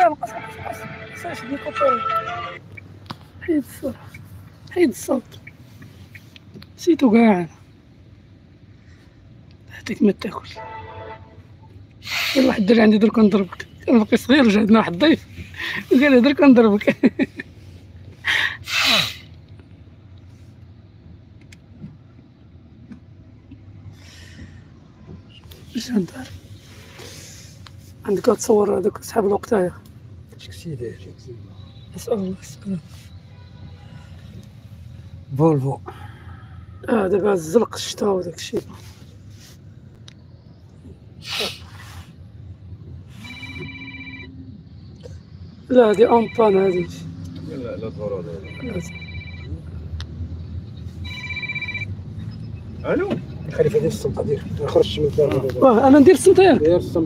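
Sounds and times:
car engine drone inside cabin: 0:34.0 - 0:57.0.

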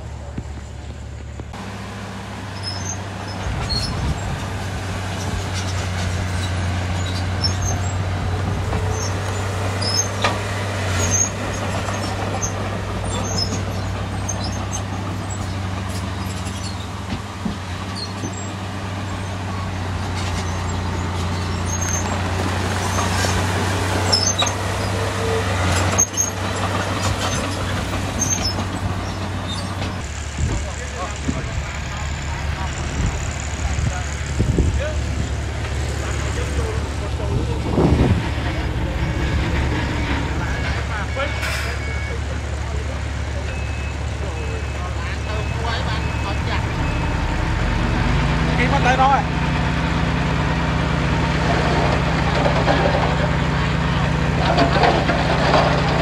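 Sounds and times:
heavy diesel engine under load: 0:00.0 - 0:56.0
high-pitched squeaks and clinks: 0:24.1 - 0:30.0.

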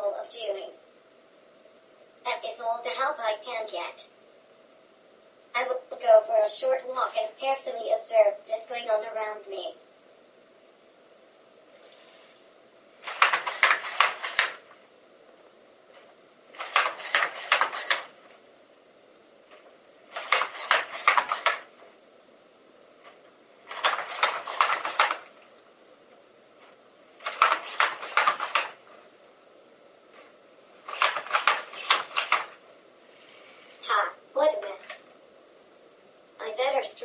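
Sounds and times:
robot walking with rapid clicking: 0:13.0 - 0:14.7, 0:16.6 - 0:18.1, 0:20.1 - 0:21.7, 0:23.7 - 0:25.3, 0:27.2 - 0:28.8, 0:30.9 - 0:32.6.

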